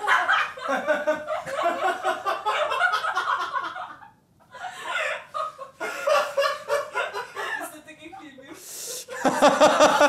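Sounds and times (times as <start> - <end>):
man cackling laughter: 9.1 - 10.0.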